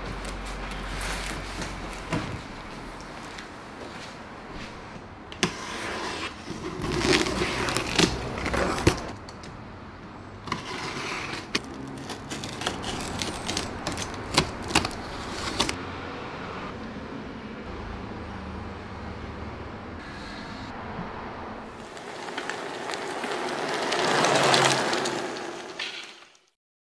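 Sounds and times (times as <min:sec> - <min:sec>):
cardboard scraping and rustling: 0:00.0 - 0:02.6, 0:05.4 - 0:09.3, 0:10.5 - 0:15.8.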